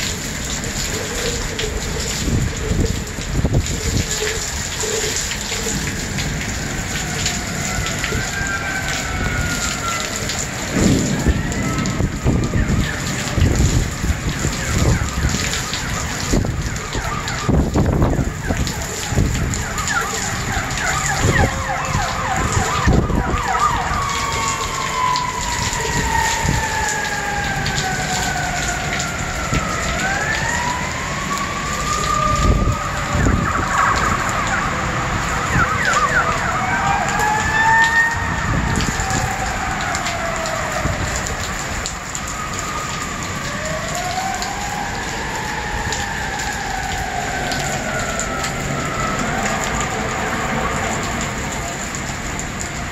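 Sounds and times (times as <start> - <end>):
heavy rain hissing: 0.0 - 16.6
emergency sirens wailing: 0.0 - 52.9.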